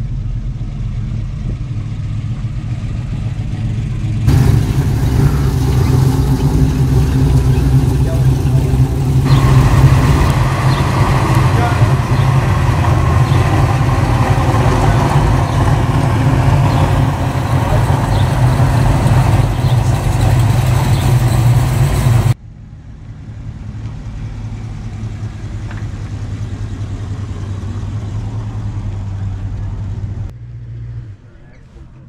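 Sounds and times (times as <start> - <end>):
car engines running low: 0.0 - 32.0
quiet car engine creeping by: 0.0 - 32.0.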